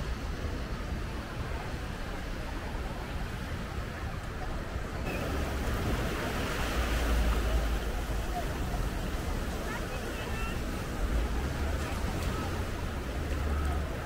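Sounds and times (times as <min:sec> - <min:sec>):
ocean surf washing onto beach: 0:00.0 - 0:14.0.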